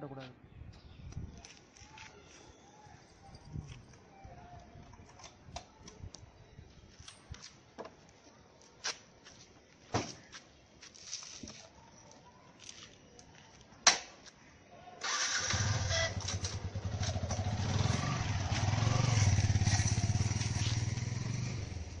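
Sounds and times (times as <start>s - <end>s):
motorcycle engine running: 15.6s - 22.0s.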